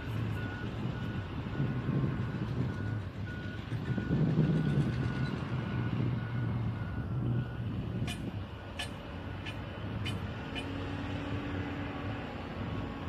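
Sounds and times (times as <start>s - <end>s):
diesel engines running: 0.0s - 13.0s
reversing alarm beeping: 0.3s - 10.7s.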